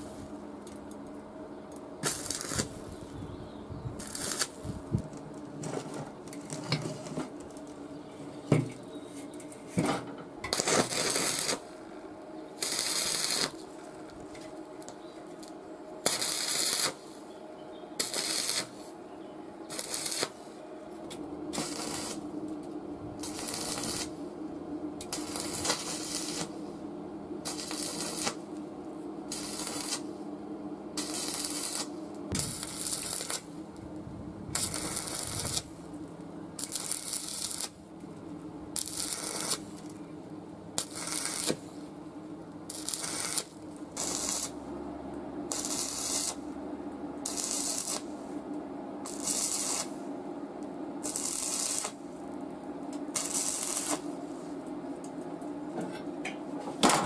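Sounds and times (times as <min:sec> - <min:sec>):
low hum: 0:17.3 - 0:57.0.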